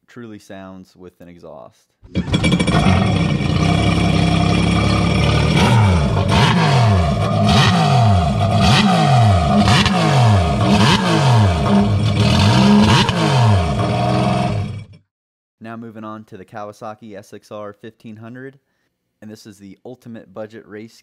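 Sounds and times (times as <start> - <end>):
jet ski engine revving: 2.1 - 14.9.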